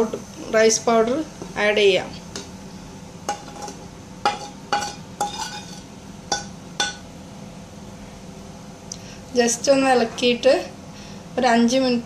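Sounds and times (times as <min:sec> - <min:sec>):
spoon and plate clinking on metal pot: 0:03.3 - 0:07.0.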